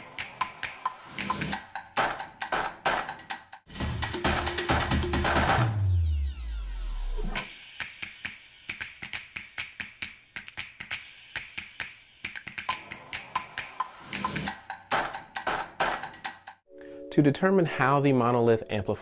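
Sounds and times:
percussion track over loudspeakers: 0:00.6 - 0:05.7.

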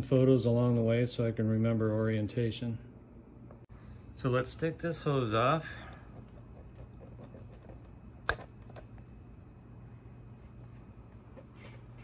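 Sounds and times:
steady low hum: 0:00.0 - 0:12.0
faint handling noises: 0:05.8 - 0:12.0.

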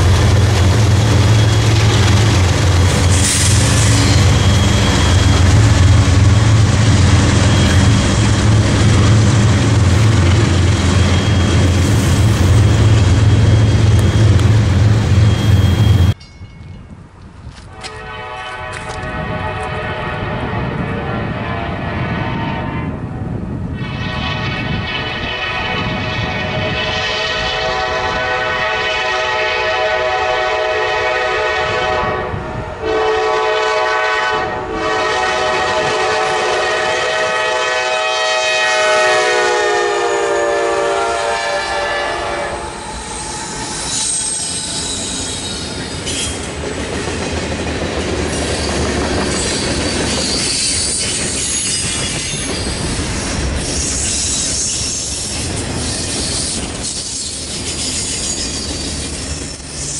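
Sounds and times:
high squealing of wheels: 0:00.8 - 0:06.2, 0:07.3 - 0:08.4, 0:10.2 - 0:16.2, 0:42.5 - 0:46.5, 0:48.3 - 0:59.9
locomotive air horn: 0:17.7 - 0:22.8, 0:23.8 - 0:45.4.

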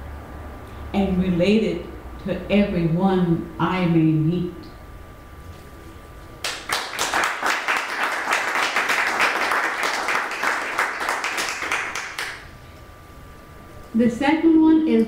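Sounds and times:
small audience applauding: 0:06.4 - 0:12.5.

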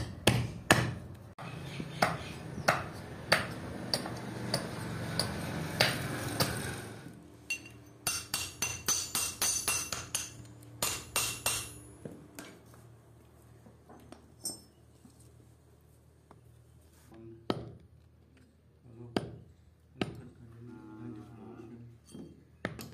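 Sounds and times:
hammer striking steel blade: 0:07.5 - 0:11.9.

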